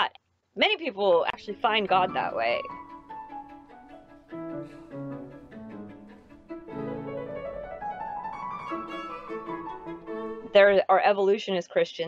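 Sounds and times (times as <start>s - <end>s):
bowed strings: 1.3s - 10.8s
piano: 1.4s - 10.8s.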